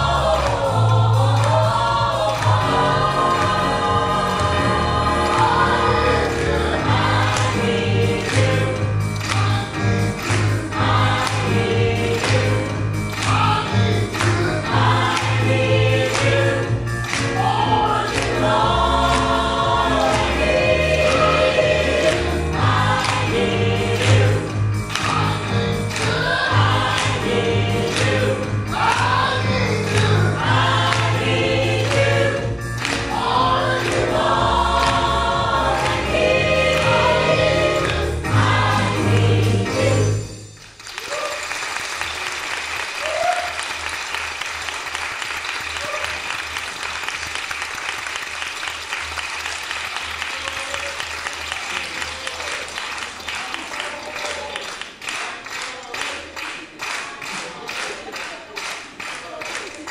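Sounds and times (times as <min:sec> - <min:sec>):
gospel choir singing: 0:00.0 - 0:40.5
instrumental accompaniment with beat: 0:00.0 - 0:40.9.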